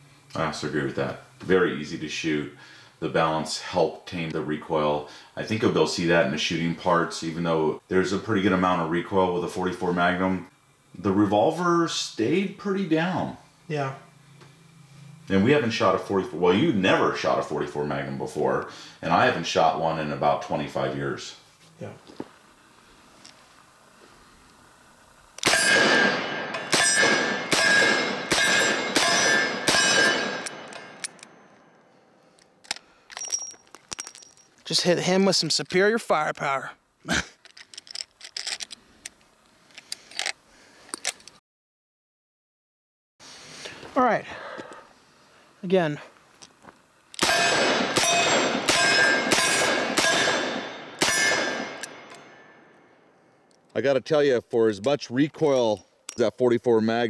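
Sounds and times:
steel plate targets ringing: 0:25.4 - 0:31.6, 0:47.2 - 0:52.7.

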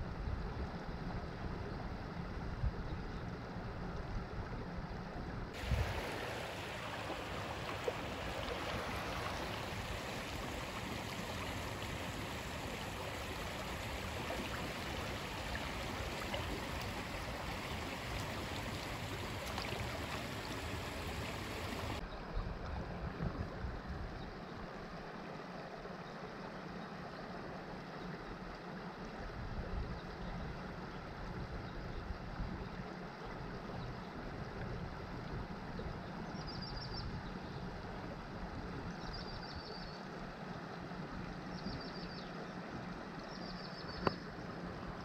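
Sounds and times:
creek water rushing over rocks: 0:05.6 - 0:22.0.

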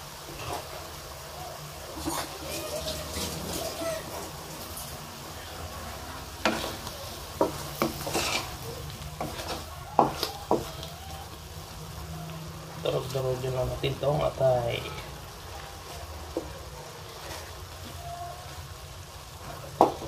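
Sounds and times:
food sizzling in a wok: 0:00.0 - 0:20.0
spoon scraping a pan: 0:02.0 - 0:05.0, 0:06.3 - 0:11.4, 0:15.8 - 0:18.6.

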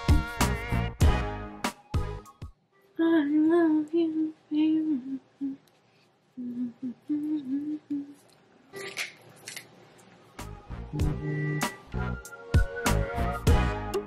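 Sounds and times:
woman humming: 0:03.0 - 0:05.7, 0:06.3 - 0:08.4, 0:10.9 - 0:11.8.

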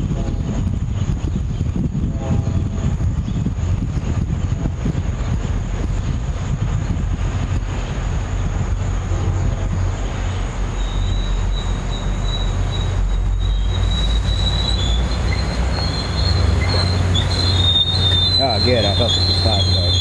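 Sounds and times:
train rumbling: 0:00.0 - 0:20.0
high-pitched wheel squeal: 0:10.7 - 0:20.0.

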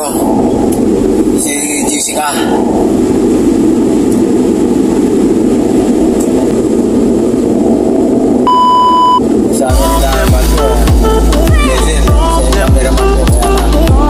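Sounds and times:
van road and engine rumble: 0:00.0 - 0:14.0
high-pitched beep: 0:08.5 - 0:09.2.

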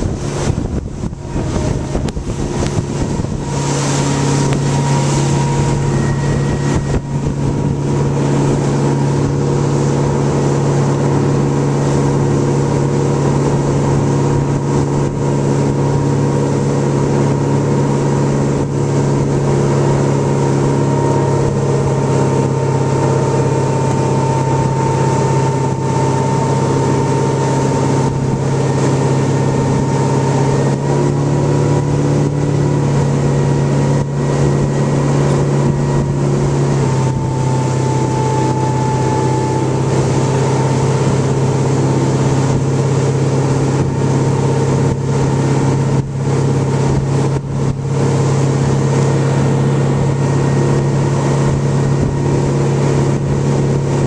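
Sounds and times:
wind rushing: 0:00.0 - 0:12.1
boat engine running: 0:00.0 - 0:54.0
water churning: 0:00.0 - 0:54.0.

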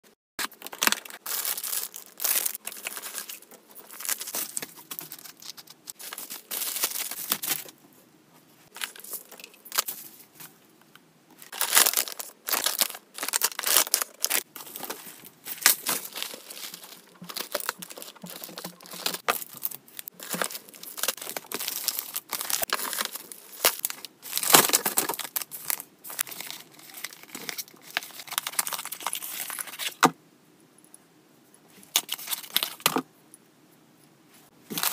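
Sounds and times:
plastic wrapping crinkling: 0:00.4 - 0:07.8, 0:11.4 - 0:30.0, 0:34.7 - 0:34.9
packing tape tearing: 0:11.5 - 0:14.9.

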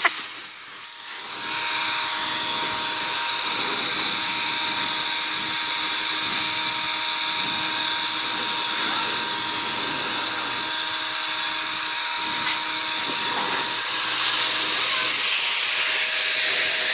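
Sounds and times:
leaf blower running: 0:00.0 - 0:16.9.

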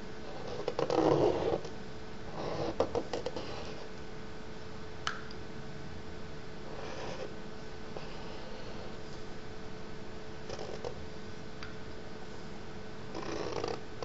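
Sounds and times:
steady background hum: 0:00.0 - 0:14.0
stick scratching across paper: 0:00.3 - 0:01.7, 0:06.7 - 0:07.3.

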